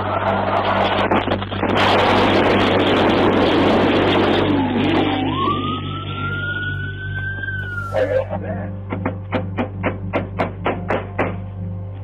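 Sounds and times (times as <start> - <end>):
rising tone: 0.0 - 8.9
steady low hum: 0.0 - 12.0.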